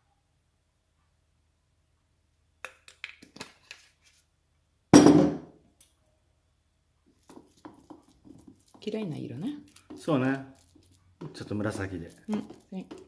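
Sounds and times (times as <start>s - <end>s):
glass bottle thud on wood: 5.0s - 5.5s.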